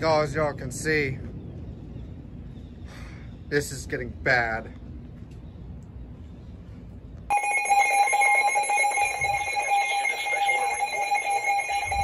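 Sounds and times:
radio alert tone: 7.3s - 12.0s.

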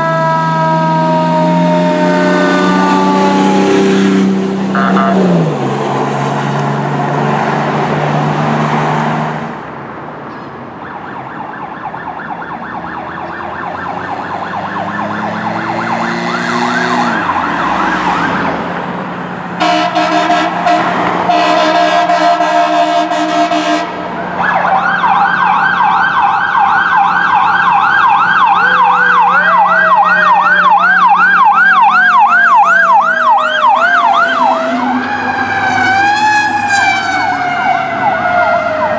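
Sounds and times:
air horn blasts: 0.0s - 5.4s, 19.6s - 24.0s
electronic yelp siren: 0.0s - 5.6s, 10.8s - 18.6s, 21.3s - 38.9s
low wailing siren: 0.0s - 9.5s, 10.7s - 38.9s
truck pulling away: 0.1s - 10.5s, 13.1s - 38.9s.

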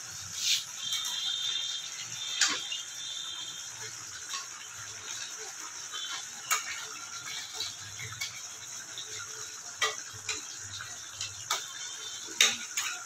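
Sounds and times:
spatula scraping a pan: 0.2s - 13.0s.

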